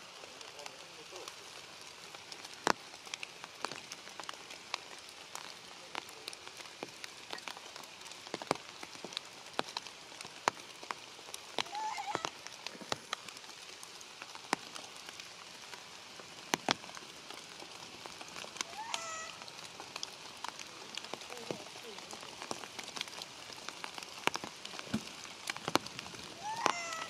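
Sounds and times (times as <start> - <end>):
rain falling on leaves: 0.0 - 27.0
wavering high call: 11.7 - 12.3, 18.6 - 19.4, 26.4 - 27.0.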